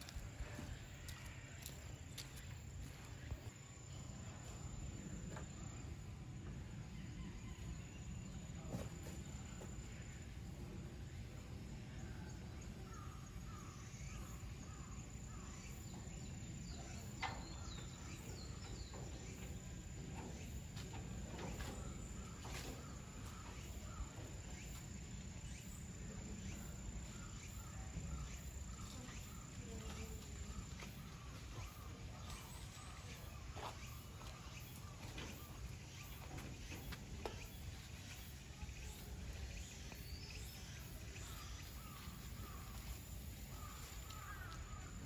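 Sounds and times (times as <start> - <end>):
faint distant voices: 0.0 - 45.0.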